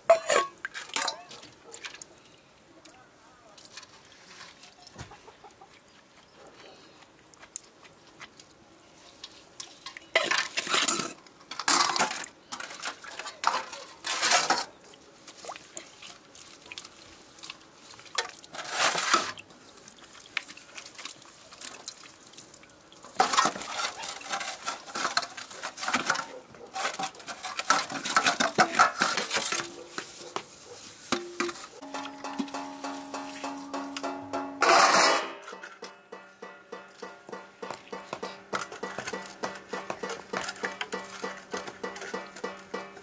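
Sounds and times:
pots and pans clattering: 0:00.0 - 0:01.4, 0:10.2 - 0:14.8, 0:23.2 - 0:29.9, 0:31.1 - 0:43.0.

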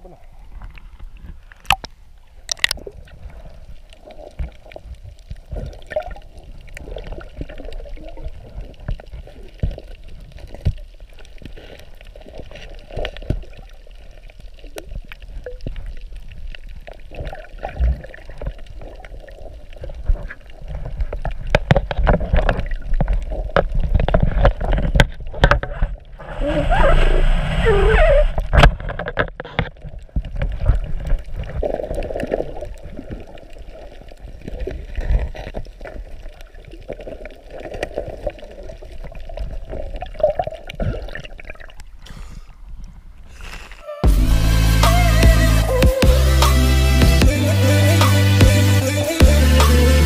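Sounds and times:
muffled underwater churning: 0:00.0 - 0:46.7
underwater clicks and knocks: 0:00.6 - 0:02.9, 0:20.0 - 0:26.0, 0:28.4 - 0:31.7
low rumble: 0:44.0 - 0:48.6.

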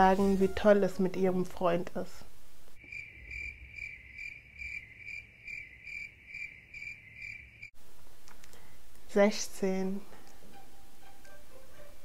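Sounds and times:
cricket chirping: 0:02.8 - 0:07.7.

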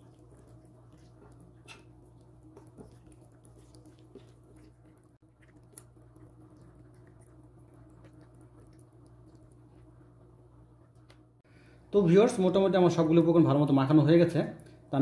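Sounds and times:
wet squishing of raw chicken: 0:00.0 - 0:10.1
steady low hum: 0:00.0 - 0:15.0.

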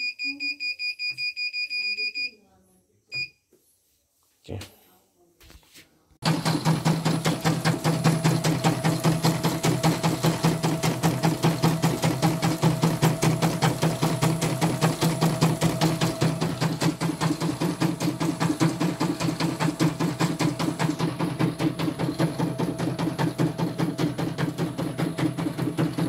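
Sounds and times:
motor hum: 0:06.2 - 0:26.0.

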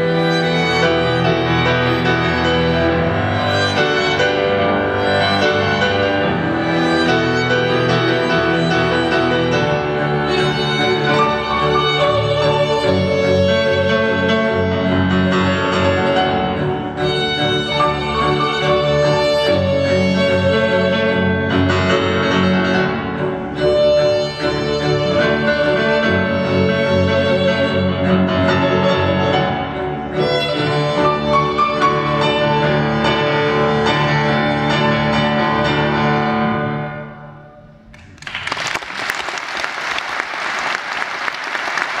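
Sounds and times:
string ensemble with piano: 0:00.0 - 0:42.0
audience applause: 0:37.9 - 0:42.0.

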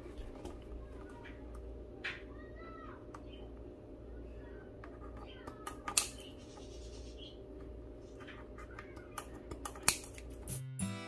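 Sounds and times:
steady low hum: 0:00.0 - 0:10.6
scissors snipping rope: 0:09.2 - 0:10.6.

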